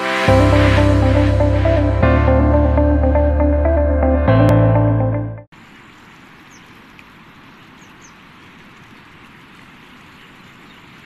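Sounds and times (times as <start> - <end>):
floodwater rushing: 5.5 - 11.0.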